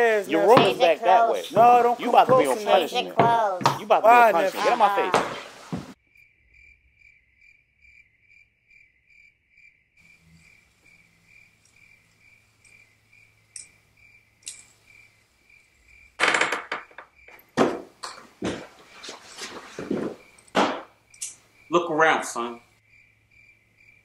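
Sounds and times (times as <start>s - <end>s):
cricket chirping: 0.0s - 5.2s, 5.9s - 24.0s
footsteps on wooden stairs: 0.0s - 6.0s, 16.9s - 20.9s.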